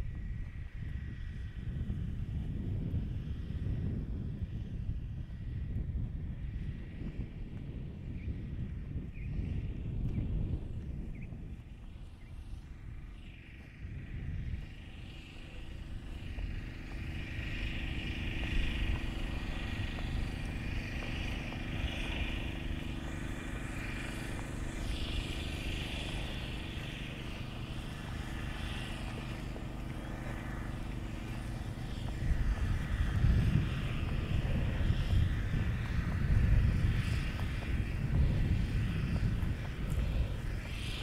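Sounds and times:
vehicle engine humming: 10.4 - 41.0.

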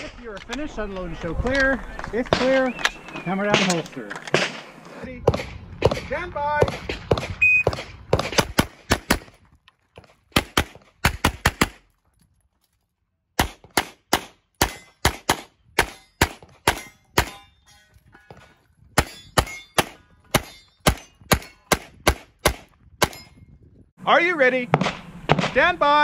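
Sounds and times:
pistol shots: 2.3 - 9.4, 10.3 - 11.8, 13.4 - 17.4, 19.0 - 23.3, 24.7 - 25.8.

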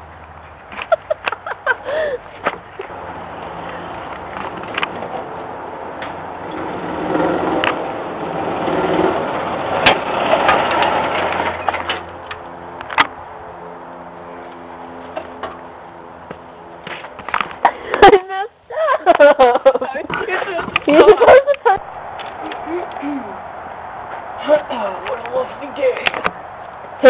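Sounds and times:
golf cart engine running: 6.0 - 12.8.

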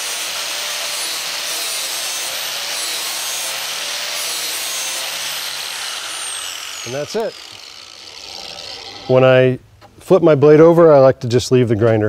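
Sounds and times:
angle grinder grinding metal: 0.0 - 9.6.

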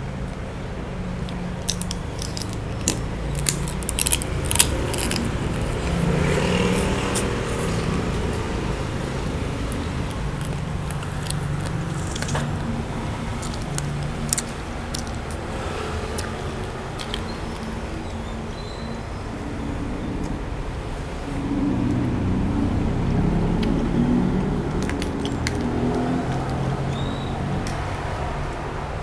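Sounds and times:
person eating crunchy food: 1.2 - 17.8, 24.7 - 26.7.

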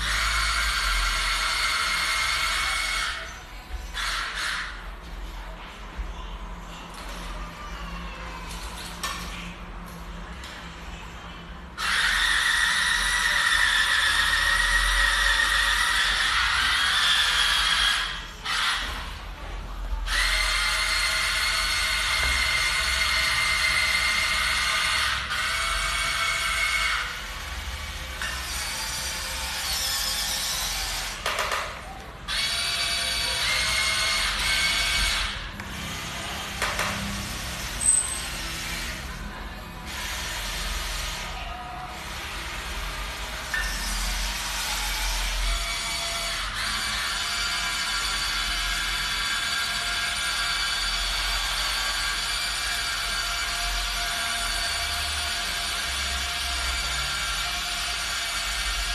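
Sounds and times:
small electric motors whining: 11.8 - 31.3, 32.3 - 58.9.

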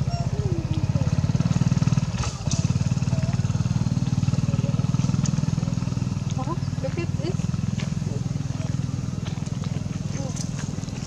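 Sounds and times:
small engine idling: 0.0 - 11.0.

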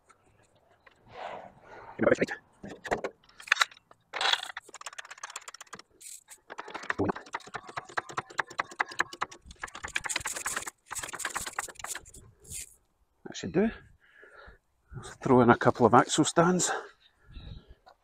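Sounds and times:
floor jack clicking and rattling: 4.2 - 12.0.

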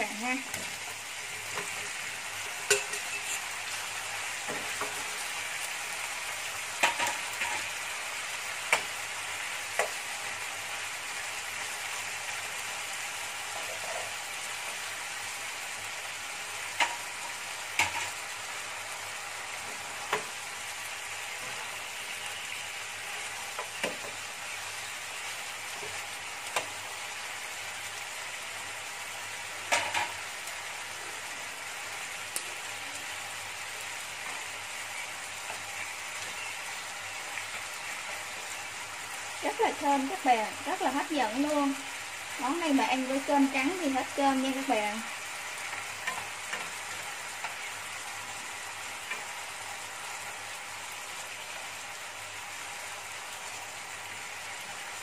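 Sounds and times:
chicken wings sizzling in a pan: 0.0 - 55.0
utensils clicking against pan: 2.6 - 3.4.

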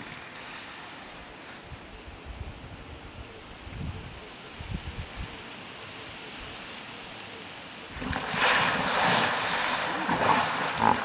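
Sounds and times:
soft outdoor hush: 0.0 - 11.0
hippos splashing in water: 7.9 - 11.0.

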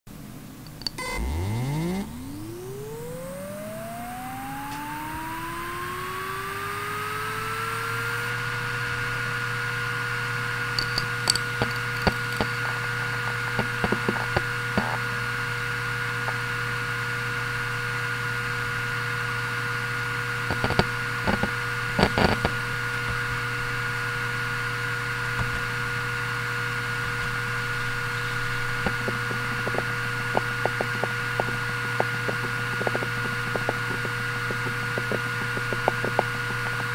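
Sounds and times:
hard drive spinning up: 0.6 - 36.9
hard drive head clicks: 0.7 - 2.9, 10.8 - 15.1, 28.2 - 36.9.

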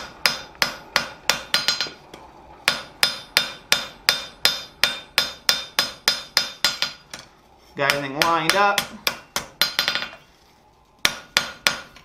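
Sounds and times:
hammer striking steel on anvil: 0.0 - 2.0, 2.6 - 7.2, 7.8 - 10.2, 11.0 - 12.0.

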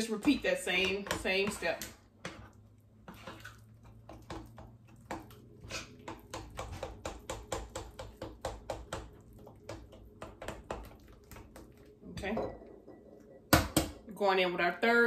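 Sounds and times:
utensil scraping glass bowl: 1.0 - 3.8.

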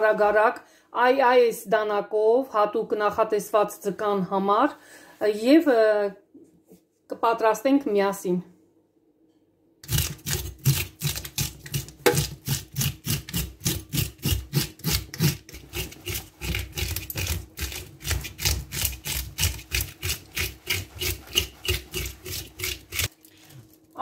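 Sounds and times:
knife scraping fish scales: 9.8 - 23.2.

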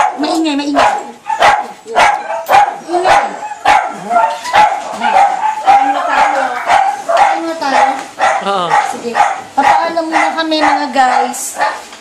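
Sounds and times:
dogs barking: 0.0 - 12.0.

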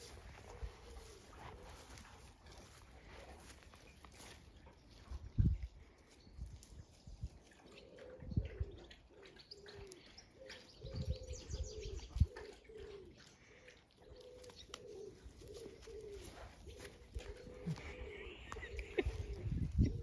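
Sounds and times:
pigeon cooing: 0.0 - 2.0, 7.6 - 20.0.

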